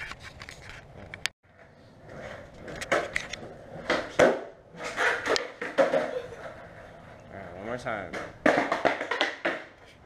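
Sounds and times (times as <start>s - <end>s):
skateboard clacking on concrete: 1.5s - 7.1s, 7.7s - 9.9s.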